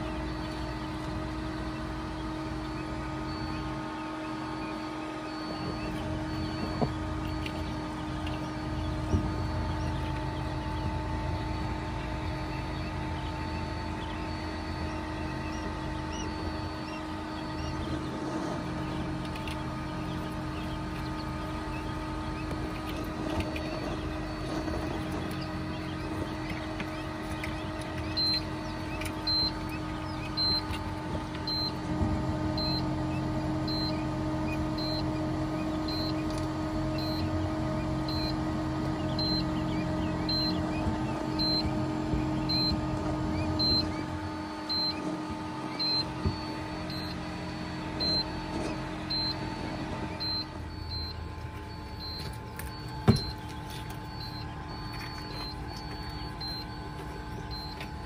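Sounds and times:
chicks peeping: 0:00.0 - 0:58.0
incubator fan humming: 0:00.0 - 0:58.0
short high tone beeping: 0:45.7 - 0:58.0.

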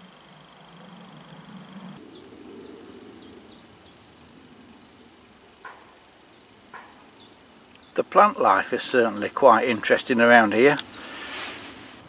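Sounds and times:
songbird chirping: 0:00.0 - 0:11.8
outdoor background noise: 0:00.0 - 0:12.0.

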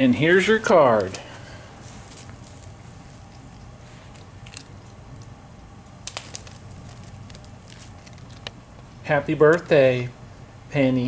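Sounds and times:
cat crunching dry treats: 0:01.8 - 0:08.9.

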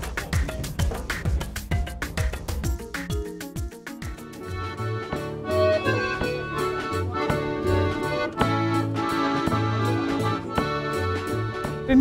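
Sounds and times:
drums beat: 0:00.0 - 0:05.6
bass notes: 0:00.0 - 0:12.0
accordion: 0:01.3 - 0:12.0.

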